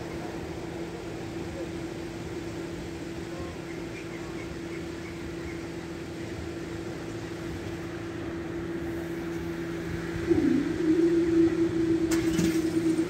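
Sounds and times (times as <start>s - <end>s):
level crossing alarm tone: 10.3s - 13.0s.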